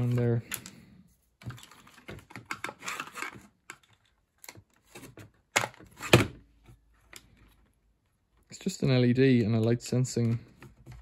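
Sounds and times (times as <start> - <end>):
plastic parts clicking and rattling: 0.0 - 0.8, 1.4 - 6.3.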